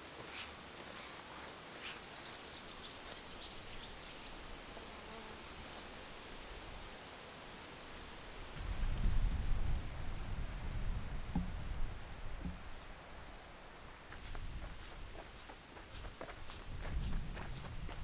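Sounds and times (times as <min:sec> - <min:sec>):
footsteps on dirt track: 0:00.0 - 0:02.0, 0:13.7 - 0:18.0
insects trilling: 0:03.0 - 0:06.1, 0:07.0 - 0:08.6.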